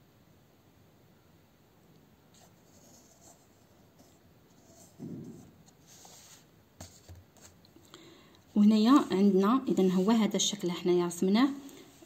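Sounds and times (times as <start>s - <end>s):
pencil scratching on paper: 2.4s - 7.6s
soft low thump: 5.0s - 5.6s.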